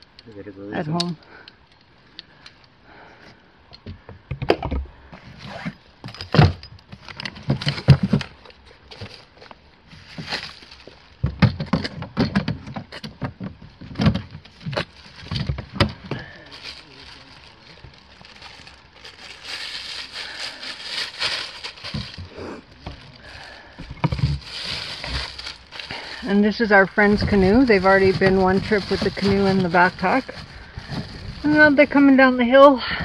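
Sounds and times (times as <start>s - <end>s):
plastic bag crinkling: 7.0s - 11.3s, 13.5s - 32.4s.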